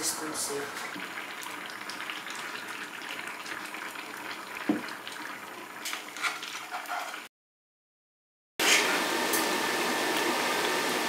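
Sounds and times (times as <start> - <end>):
soup bubbling: 0.7 - 7.3.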